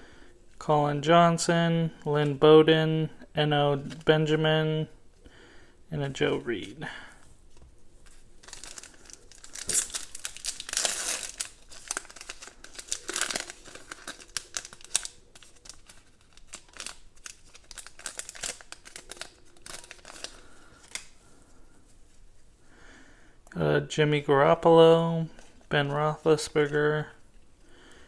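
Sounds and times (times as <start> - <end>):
foil wrapper tearing and crinkling: 8.4 - 21.1.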